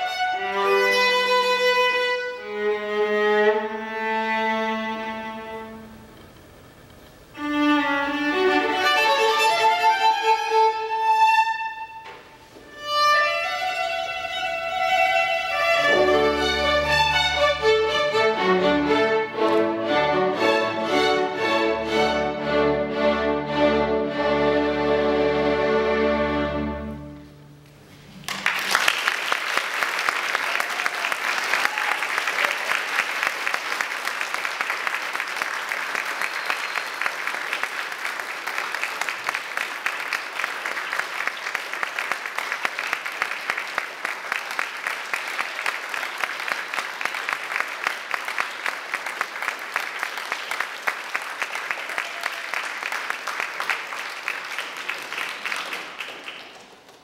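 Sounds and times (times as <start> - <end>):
string orchestra and viola chord: 7.4 - 27.6
audience applause: 28.1 - 57.0.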